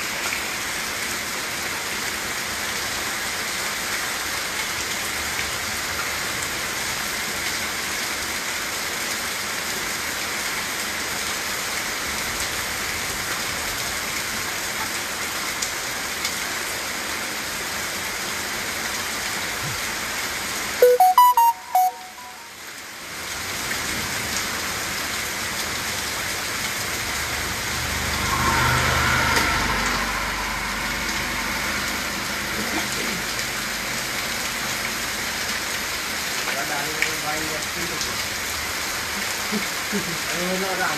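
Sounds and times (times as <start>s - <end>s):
heavy rain on roof: 0.0s - 20.8s, 22.5s - 28.1s, 31.6s - 40.9s
loud beeping tones: 20.8s - 22.5s.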